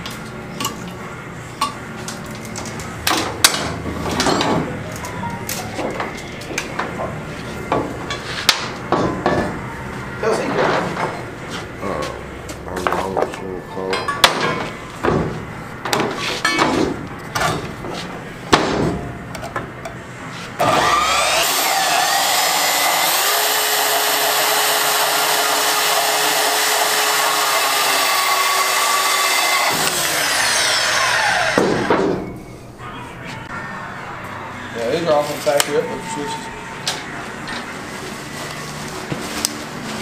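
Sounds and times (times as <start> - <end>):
band saw cutting steel: 20.6 - 31.9.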